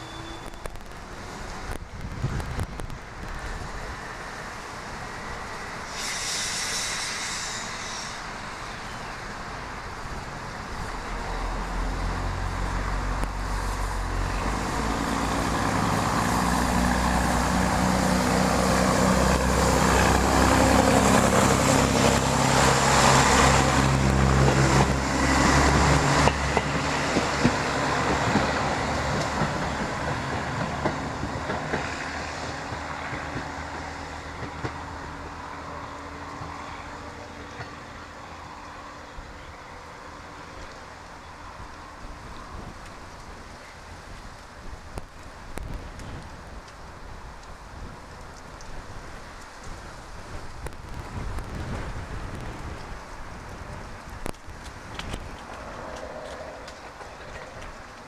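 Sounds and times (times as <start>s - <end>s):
diesel railcar engine accelerating: 0.0s - 58.0s
short hiss: 5.9s - 8.5s
train wheel clicks: 24.4s - 32.0s, 54.0s - 58.0s.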